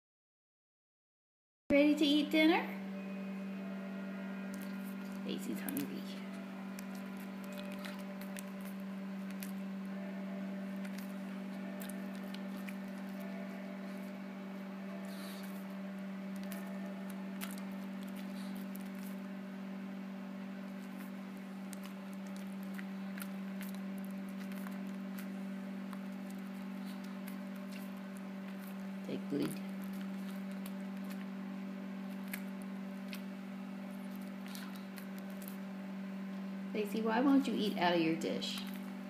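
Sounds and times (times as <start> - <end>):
low electrical hum: 1.7 - 39.0.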